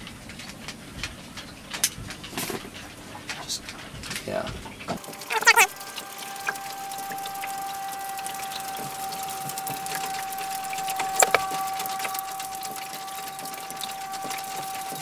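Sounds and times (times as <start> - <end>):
steady whine: 5.0 - 15.0.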